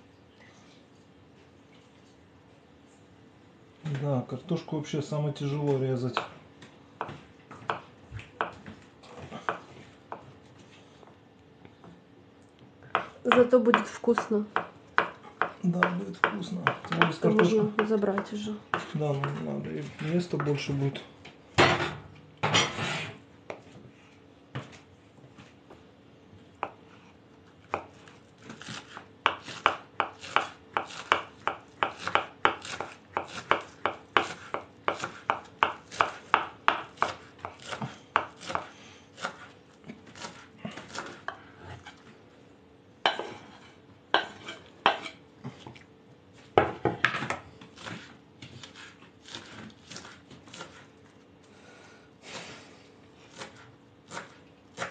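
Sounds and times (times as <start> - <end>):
knife chopping on wooden board: 6.1 - 6.4, 7.0 - 10.3, 12.9 - 20.6, 26.6 - 26.8, 27.6 - 42.0, 43.0 - 45.7, 46.5 - 50.9, 53.3 - 54.9.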